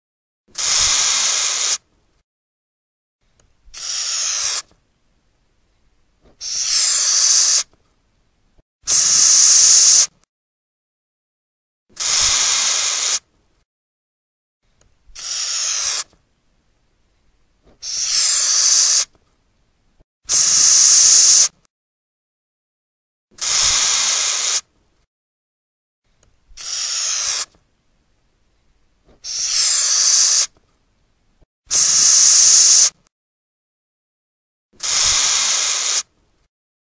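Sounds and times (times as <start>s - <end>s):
cockroach hissing: 0.6s - 1.8s, 3.8s - 4.6s, 6.4s - 7.7s, 8.9s - 10.1s, 12.0s - 13.2s, 15.2s - 16.0s, 17.8s - 19.1s, 20.3s - 21.5s, 23.4s - 24.6s, 26.6s - 27.5s, 29.2s - 30.5s, 31.7s - 33.0s, 34.8s - 36.0s.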